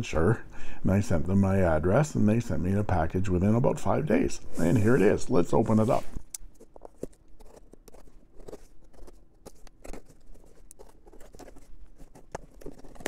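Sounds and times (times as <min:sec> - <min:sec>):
cardboard crackling and scraping: 0:04.6 - 0:13.0.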